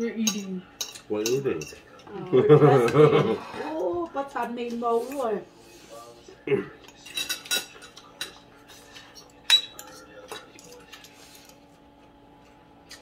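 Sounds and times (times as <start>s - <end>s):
cutlery clinking on plates: 0.0s - 3.2s, 6.7s - 11.6s.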